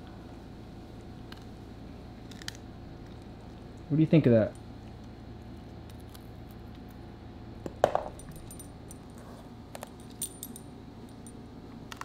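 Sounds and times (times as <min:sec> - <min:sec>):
dog collar tags jingling: 0:08.1 - 0:09.0.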